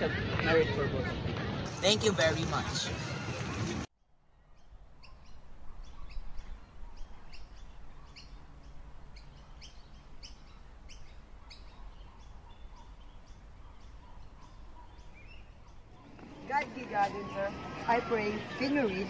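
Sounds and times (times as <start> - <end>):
small birds chirping: 4.4 - 19.0.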